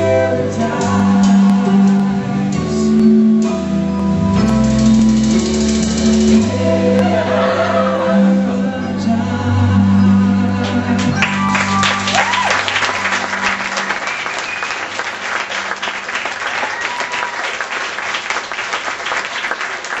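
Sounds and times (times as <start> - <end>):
short cheers: 11.2 - 15.0, 16.4 - 17.8
audience applause: 11.2 - 20.0.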